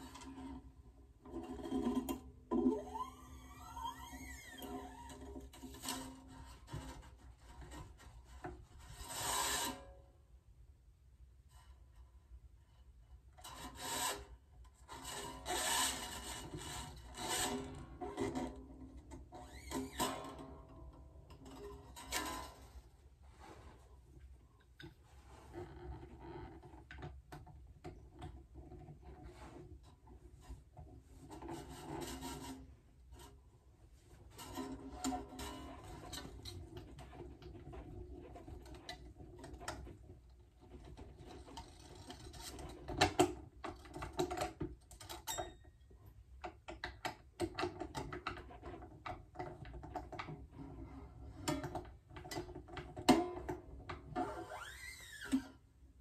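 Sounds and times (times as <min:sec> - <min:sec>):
guitar strings and pegs rattling: 0:14.8 - 0:22.9, 0:34.0 - 0:55.6.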